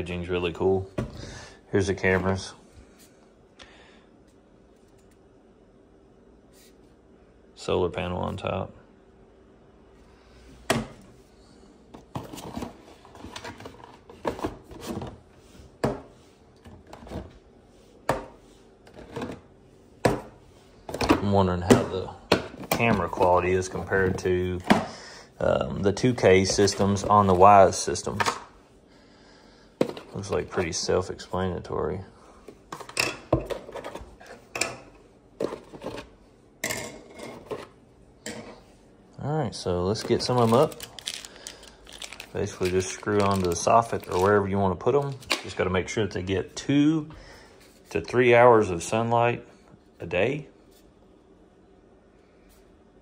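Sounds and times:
plastic parts knocking and clattering: 39.9 - 44.3
packaging rustling: 39.9 - 45.4.

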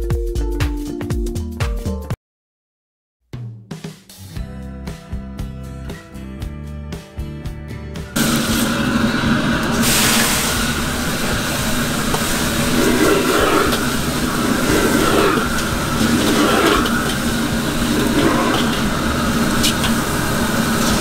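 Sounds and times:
food sizzling in a wok: 8.2 - 21.0
gas burner roaring: 8.2 - 21.0.

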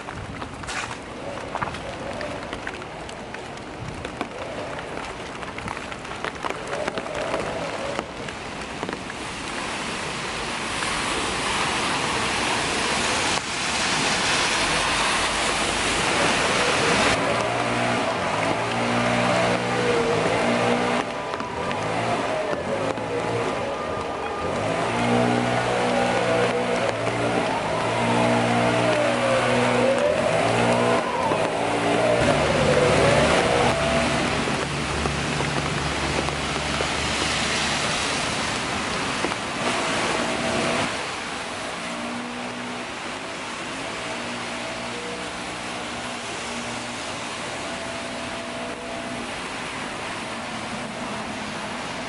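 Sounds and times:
car tyres hissing on wet asphalt: 0.0 - 52.0
traffic engine hum: 0.0 - 52.0
tyre hiss on wet road: 0.6 - 1.1, 8.4 - 17.9, 33.8 - 43.2
distant siren wailing: 6.2 - 9.5, 10.1 - 52.0.

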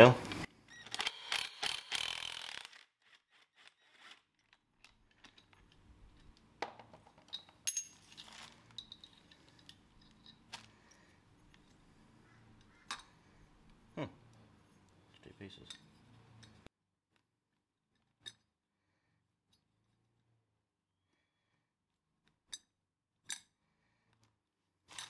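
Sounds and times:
cordless impact driver running: 0.9 - 2.9
faint metal clinks and taps: 4.8 - 11.8, 14.3 - 16.7.

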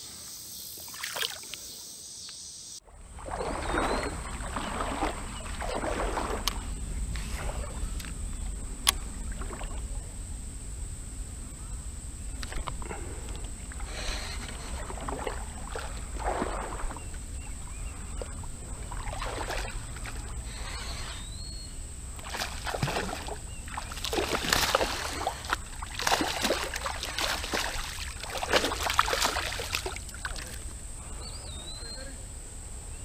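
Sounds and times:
water splashing around legs: 0.9 - 1.6, 2.9 - 7.8, 12.4 - 21.1, 22.2 - 30.7
fish splashing at surface: 3.1 - 6.6, 18.9 - 20.8, 22.2 - 30.6.

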